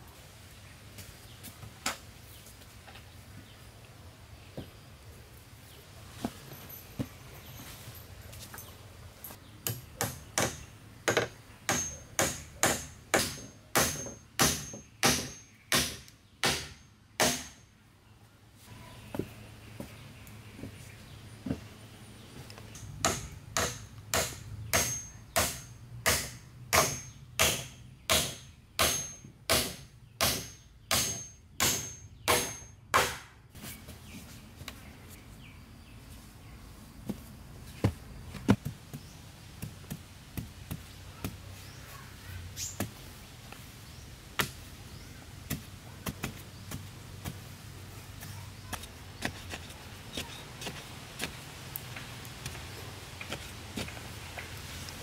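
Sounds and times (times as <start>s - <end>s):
tool striking wood: 9.6s - 17.6s, 22.8s - 33.3s.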